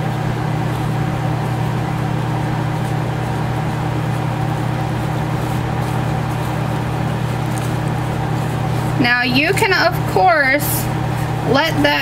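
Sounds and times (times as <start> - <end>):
steady low hum: 0.0 - 12.0
whisk stirring dry powder: 2.3 - 11.4.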